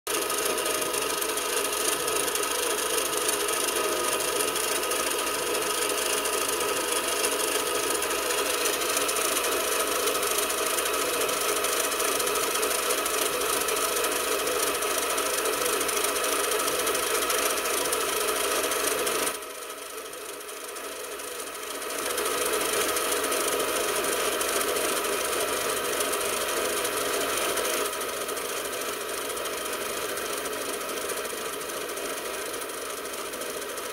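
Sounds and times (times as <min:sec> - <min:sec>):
lathe tool cutting metal: 0:00.1 - 0:19.4
lathe motor and gear whine: 0:00.1 - 0:33.9.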